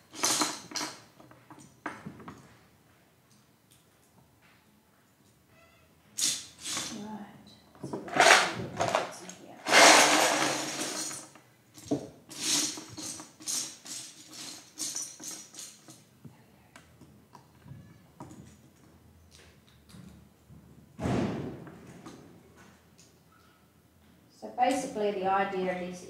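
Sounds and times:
hands sorting plastic bricks: 0.0s - 2.4s, 6.2s - 7.0s, 7.8s - 16.1s
plastic bricks clattering: 0.1s - 1.0s, 7.9s - 16.0s.

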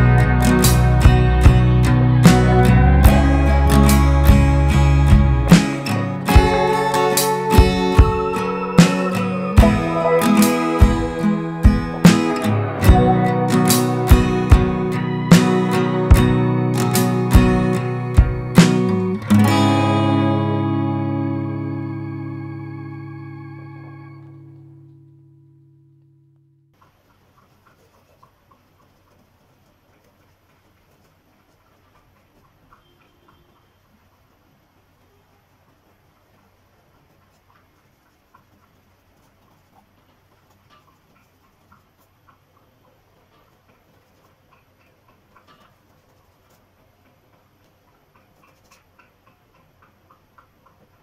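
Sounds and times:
held organ-like chord: 0.0s - 5.5s, 6.3s - 25.3s.

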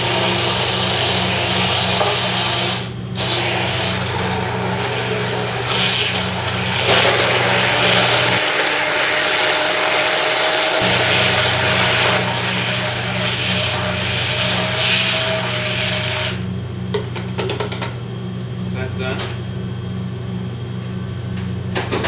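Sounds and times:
liquid churning: 0.0s - 16.4s
immersion blender motor whine: 0.0s - 16.5s.

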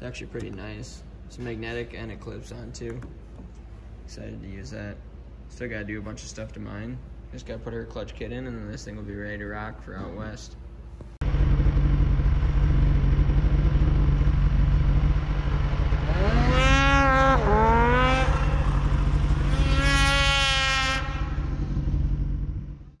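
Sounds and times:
snowmobile engines droning: 11.2s - 23.0s
snowmobile revving past: 11.4s - 22.6s.

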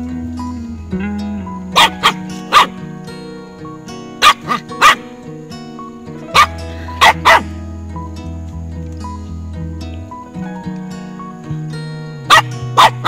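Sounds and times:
background music: 0.0s - 13.0s
puppies yipping and barking: 1.7s - 2.8s, 4.2s - 5.1s, 6.2s - 7.5s, 12.3s - 13.0s.

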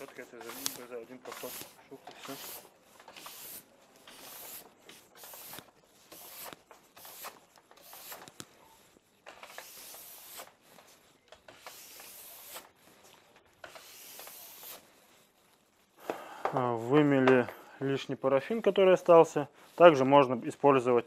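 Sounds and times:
steel brush scratching ski base: 0.0s - 16.0s, 17.8s - 21.0s.

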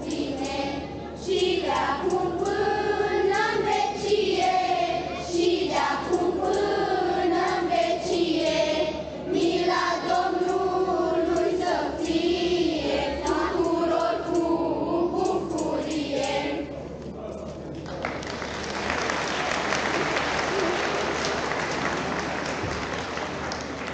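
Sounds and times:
children's choir singing a carol: 0.0s - 16.9s.

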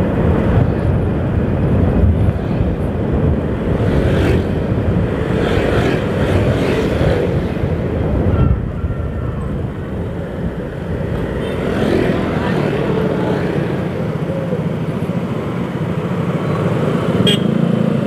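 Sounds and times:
wind on microphone: 0.0s - 14.9s.

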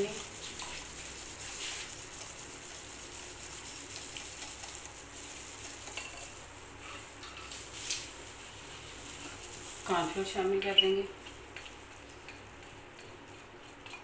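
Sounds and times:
whisk beating batter in glass bowl: 0.0s - 6.4s.

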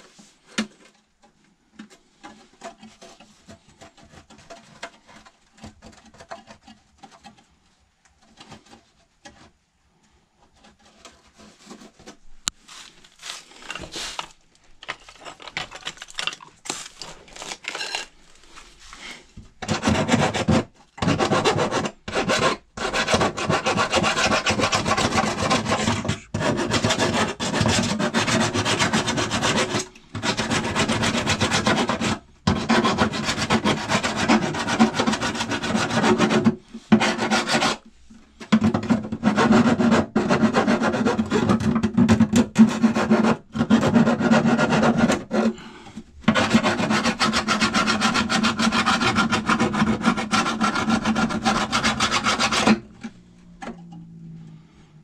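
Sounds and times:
scraping on sheet metal: 19.0s - 53.2s.

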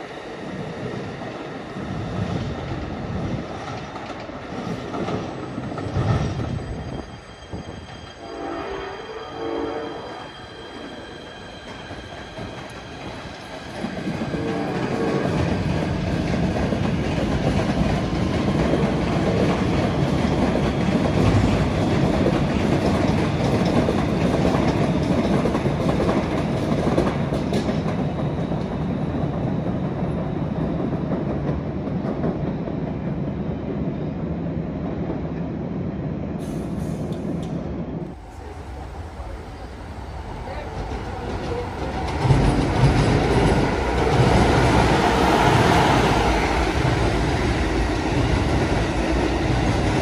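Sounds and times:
passenger train passing: 0.0s - 50.0s.

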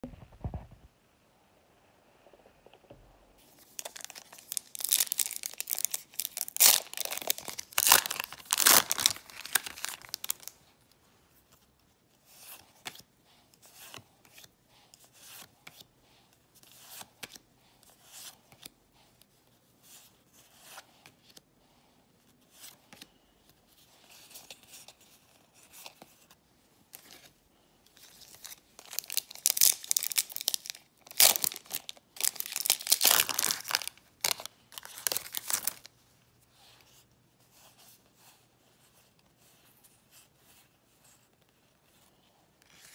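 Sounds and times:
trading cards rustling: 3.4s - 10.6s, 28.0s - 35.9s
foil wrappers tearing and crinkling: 3.8s - 10.5s, 28.8s - 35.9s.

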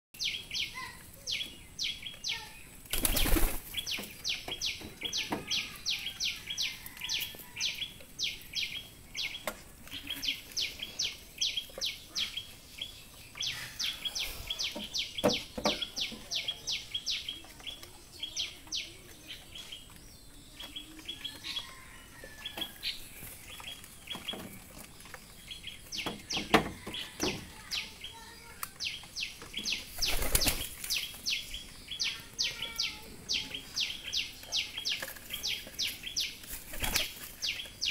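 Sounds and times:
pigeon wings flapping: 2.9s - 3.8s, 29.9s - 30.9s.

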